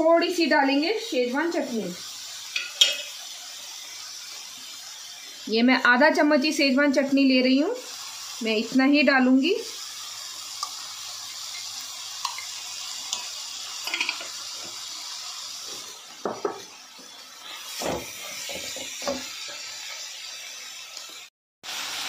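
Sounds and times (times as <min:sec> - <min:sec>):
vegetables sizzling in a pan: 0:00.0 - 0:22.0
spatula knocking and scraping pan: 0:02.5 - 0:03.2, 0:13.8 - 0:14.8, 0:15.7 - 0:16.7, 0:17.7 - 0:19.7.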